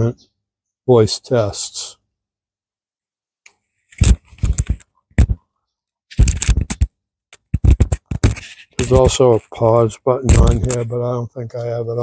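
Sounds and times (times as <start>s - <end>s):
microphone handling rubs and knocks: 3.9s - 5.4s, 6.1s - 9.6s, 10.2s - 11.0s.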